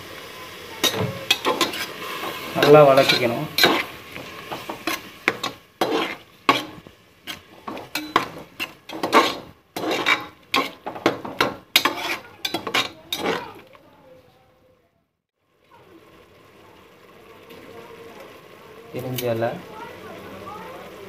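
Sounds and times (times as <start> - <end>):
tomatoes sauteing in oil: 0.0 - 14.1, 15.4 - 21.0
metal spatula scraping pot bottom: 0.8 - 13.7.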